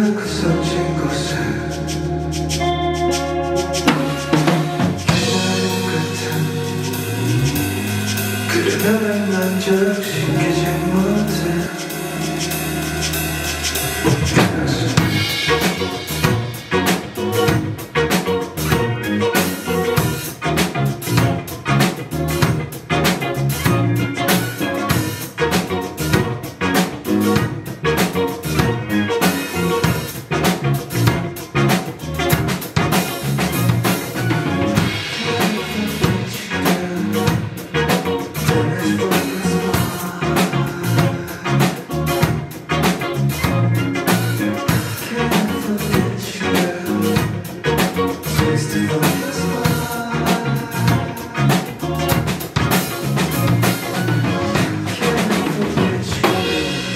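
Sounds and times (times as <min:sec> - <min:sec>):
man singing into microphone: 0:00.0 - 0:02.0, 0:04.8 - 0:12.6, 0:34.8 - 0:42.0, 0:43.5 - 0:51.8, 0:54.2 - 0:56.9
bass line: 0:00.0 - 0:56.9
drum kit beat: 0:01.6 - 0:56.9.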